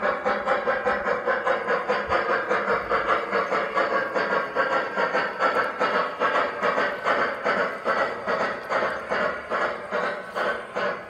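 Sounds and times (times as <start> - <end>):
model steam locomotive chuffing: 0.0 - 11.0
steam hissing: 0.0 - 11.0.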